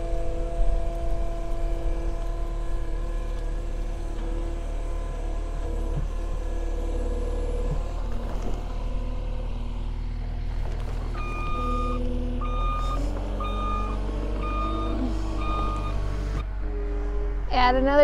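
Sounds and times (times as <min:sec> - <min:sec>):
loader diesel engine running: 0:00.0 - 0:18.0
backup alarm beeps: 0:11.2 - 0:16.1.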